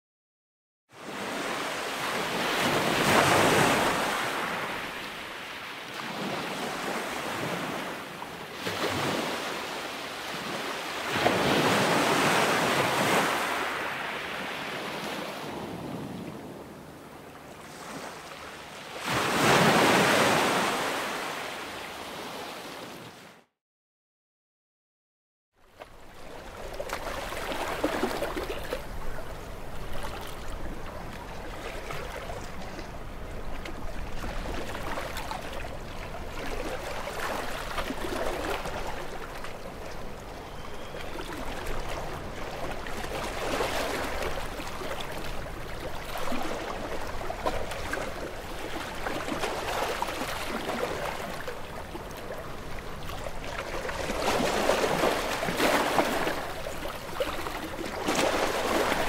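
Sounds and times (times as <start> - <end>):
sea waves washing among rocks: 41.2 - 59.0.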